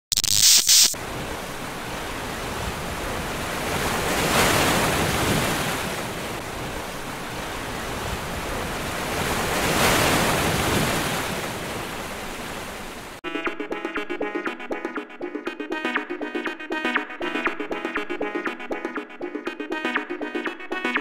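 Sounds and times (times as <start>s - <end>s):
ocean surf waves: 1.0s - 13.2s.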